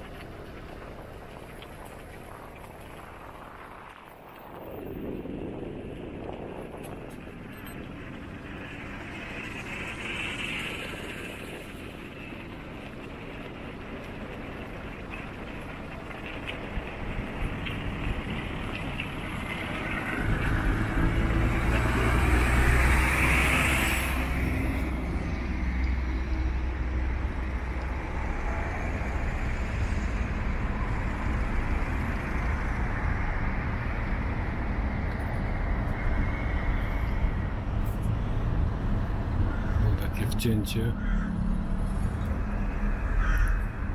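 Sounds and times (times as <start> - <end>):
road traffic engine hum: 0.0 - 43.9
vehicle passing close by: 18.4 - 40.2.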